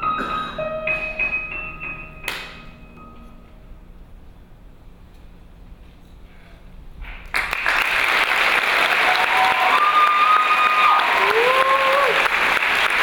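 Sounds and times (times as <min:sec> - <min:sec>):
audience applause: 0:07.2 - 0:13.0
drawn-out cheers: 0:09.0 - 0:12.3.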